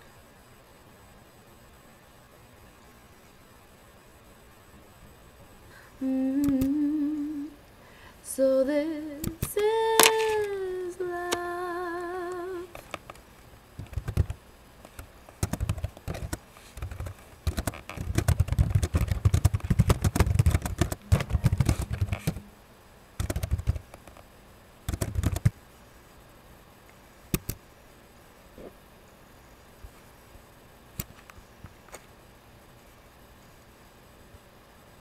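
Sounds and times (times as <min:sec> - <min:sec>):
fast typing on a keyboard: 0:13.8 - 0:22.4, 0:23.2 - 0:24.1, 0:24.9 - 0:25.5.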